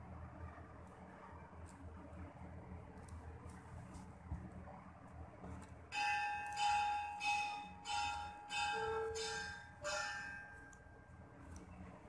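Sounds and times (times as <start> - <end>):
bell-like chimes playing a tune: 5.9 - 10.8.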